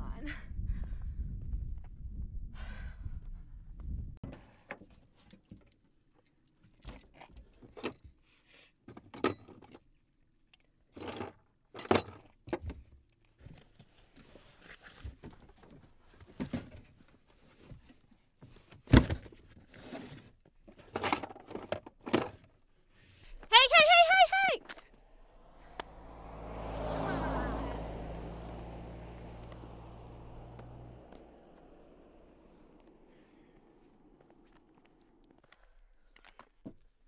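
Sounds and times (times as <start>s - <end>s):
low rumble: 25.0s - 35.3s.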